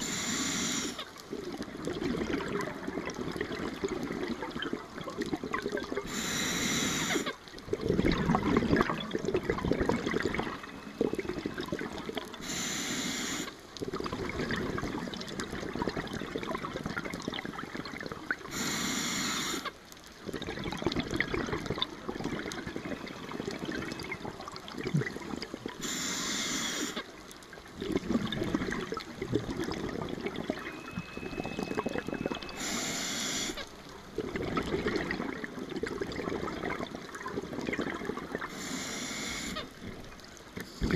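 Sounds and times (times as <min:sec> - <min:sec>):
regulator inhalation hiss: 0:00.0 - 0:01.0, 0:06.0 - 0:07.3, 0:12.4 - 0:13.6, 0:18.5 - 0:19.7, 0:25.8 - 0:27.0, 0:32.5 - 0:33.6, 0:38.5 - 0:39.7
exhaled air bubbling underwater: 0:00.0 - 0:40.9.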